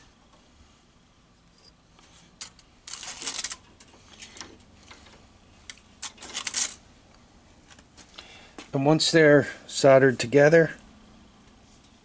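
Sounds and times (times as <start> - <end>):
wire clicking and rattling: 2.0 - 8.3.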